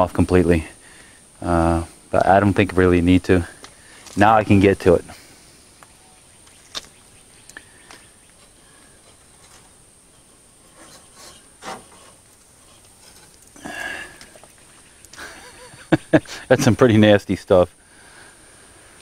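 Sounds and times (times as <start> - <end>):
hand rustling and scraping debris: 7.8 - 15.3.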